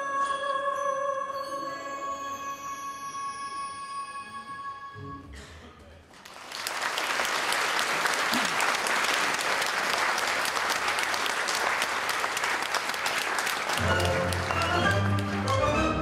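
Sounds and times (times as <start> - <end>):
audience clapping: 6.1 - 16.0
orchestral waltz music: 13.7 - 16.0.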